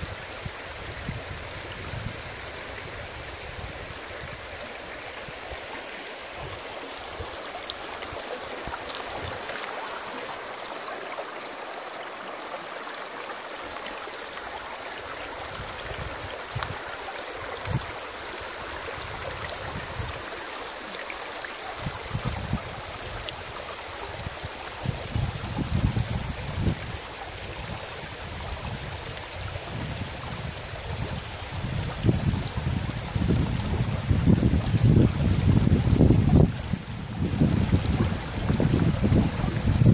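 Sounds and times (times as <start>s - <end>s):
wind buffeting microphone: 0.0s - 4.6s, 15.4s - 20.3s, 21.8s - 39.9s
stream rippling over stones: 0.0s - 39.9s.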